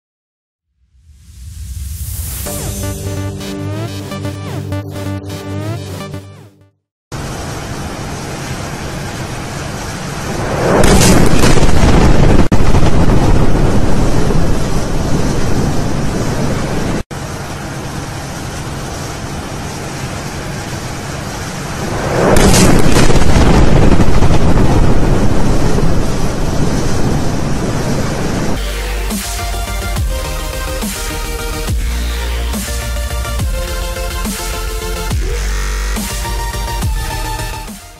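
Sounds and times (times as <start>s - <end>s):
steady low noise: 7.2s - 37.6s
explosion blast: 10.1s - 17.0s, 21.6s - 28.5s.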